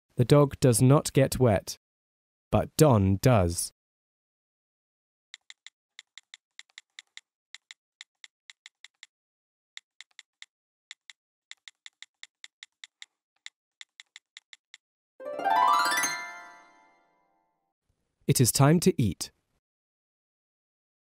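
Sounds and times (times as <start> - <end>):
keyboard typing: 5.4 - 9.1, 9.8 - 14.8.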